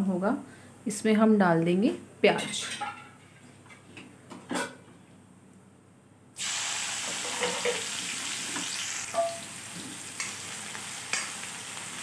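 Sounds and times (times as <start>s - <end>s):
onions sizzling in hot oil: 6.4s - 12.0s.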